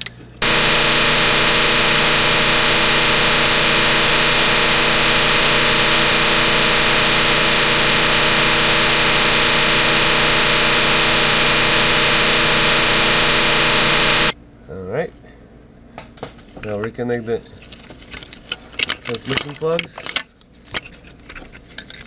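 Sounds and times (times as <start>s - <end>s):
loud machine hiss and hum: 0.4s - 14.3s.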